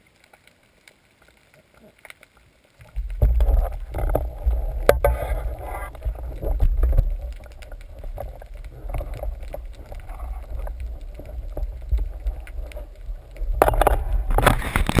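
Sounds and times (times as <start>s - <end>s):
small clicks and knocks: 0.2s - 15.0s
muffled underwater rumble: 2.8s - 15.0s.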